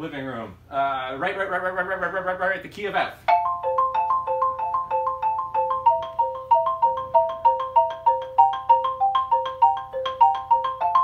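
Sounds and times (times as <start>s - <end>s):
xylophone notes: 3.3s - 11.0s.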